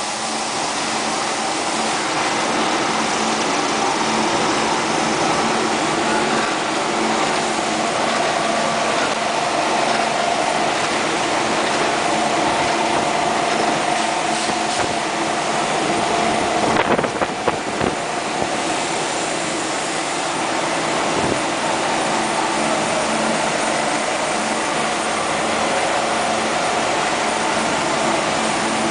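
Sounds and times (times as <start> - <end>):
grinding machine whirring: 0.0 - 28.9.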